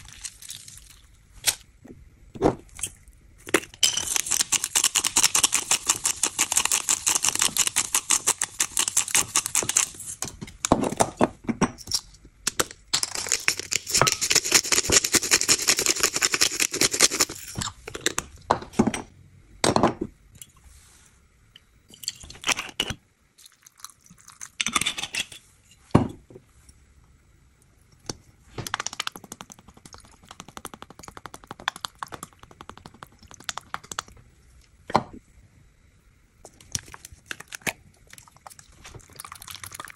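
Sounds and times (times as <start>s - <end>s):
spice grinder crunching: 3.4s - 10.0s, 12.9s - 17.7s.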